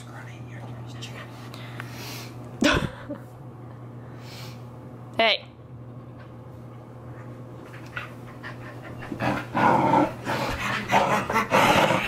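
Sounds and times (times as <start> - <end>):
dogs play-fighting: 6.2 - 12.0
dogs panting: 7.6 - 9.6, 10.2 - 12.0
dogs growling: 7.7 - 12.0.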